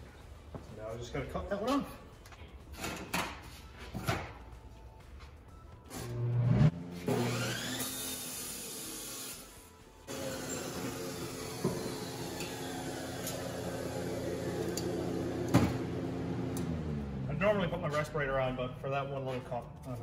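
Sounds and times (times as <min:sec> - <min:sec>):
motor winding down whine: 0:06.0 - 0:09.5, 0:10.1 - 0:17.3
chop saw cutting steel: 0:07.0 - 0:09.5.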